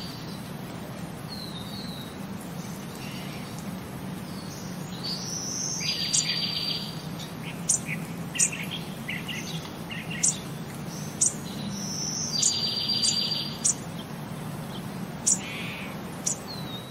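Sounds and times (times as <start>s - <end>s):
high bird-like chirps and trills: 4.3s - 16.9s.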